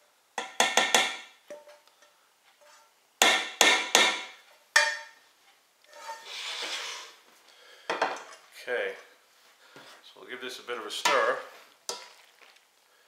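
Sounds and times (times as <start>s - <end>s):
soft scraping: 5.9s - 7.4s.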